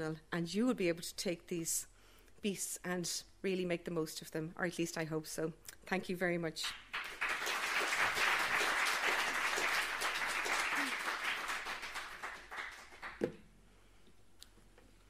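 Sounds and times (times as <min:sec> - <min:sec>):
audience applauding: 0:06.9 - 0:13.3.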